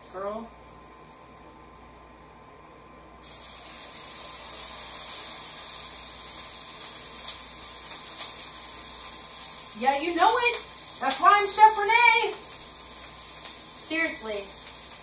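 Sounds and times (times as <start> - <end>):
bread sizzling in a skillet: 3.2 - 15.0.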